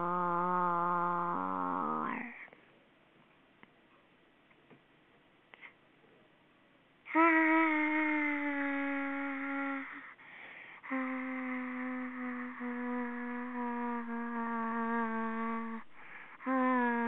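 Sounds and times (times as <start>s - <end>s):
voice holding hum-like notes: 0.0s - 2.5s, 7.1s - 10.2s, 10.8s - 17.0s.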